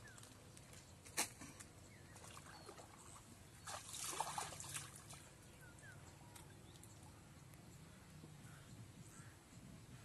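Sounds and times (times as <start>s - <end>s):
water sloshing and splashing: 2.1s - 5.5s.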